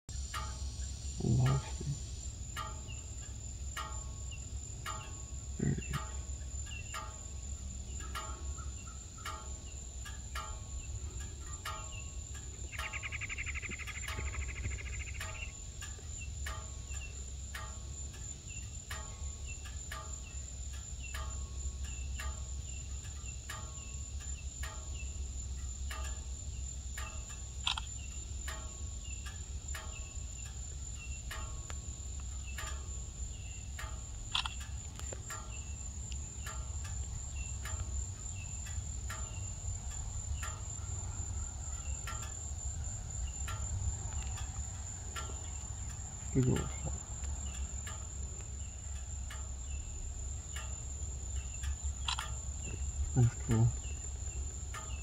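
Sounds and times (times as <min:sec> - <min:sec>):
buzzy insect trill: 0:00.1 - 0:55.0
crickets chirping: 0:00.1 - 0:55.0.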